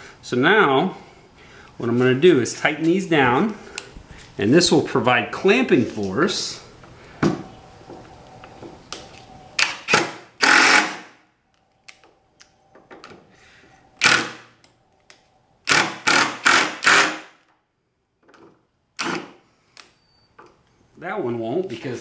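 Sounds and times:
impact driver driving screws: 9.6 - 11.1, 14.0 - 14.4, 15.7 - 17.3, 19.0 - 19.4.

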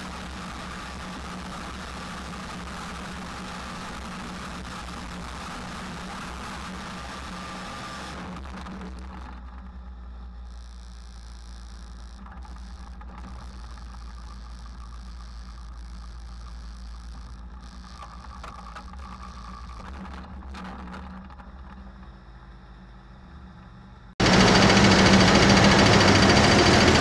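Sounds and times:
tractor engines idling: 24.2 - 27.0.

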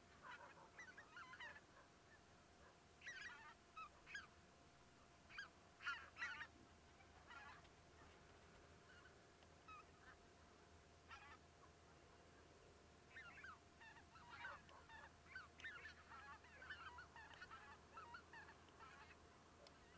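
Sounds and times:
distant bird calls: 0.0 - 4.4, 5.1 - 10.3, 11.0 - 19.9.

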